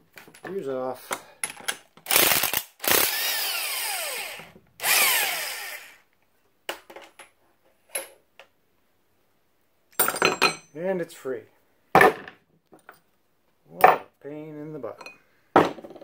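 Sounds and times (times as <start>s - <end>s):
power tool whining: 2.1s - 6.0s.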